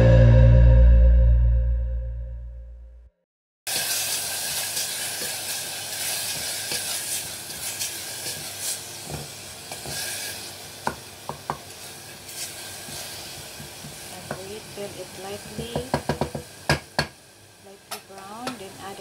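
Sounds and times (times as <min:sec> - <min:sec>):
onions sizzling in oil: 0:03.7 - 0:19.0
spatula knocking against pot: 0:10.9 - 0:11.6, 0:15.4 - 0:17.2.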